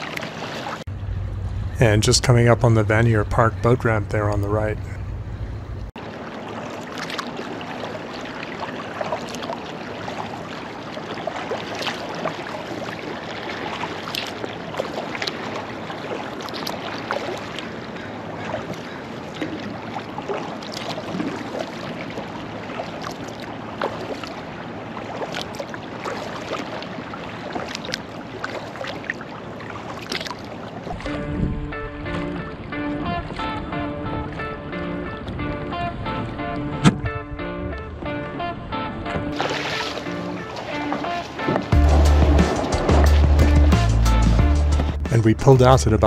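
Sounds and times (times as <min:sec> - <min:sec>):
paddle splashes: 0:00.0 - 0:00.9, 0:02.9 - 0:45.2
water lapping at hull: 0:00.0 - 0:46.0
water wash: 0:00.0 - 0:46.0.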